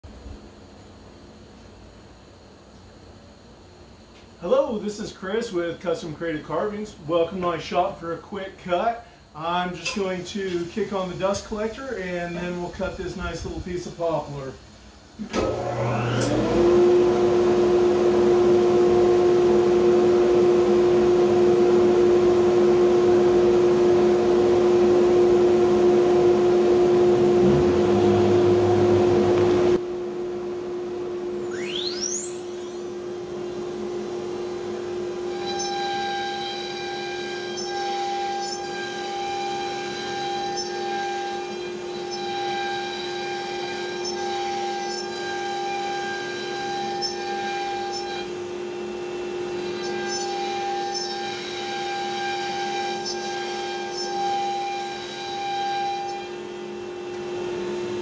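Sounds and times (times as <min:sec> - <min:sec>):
dust collector hum: 0:00.1 - 0:58.0
router spindle whine: 0:15.2 - 0:58.0
steady high tone of cutting: 0:15.2 - 0:58.0.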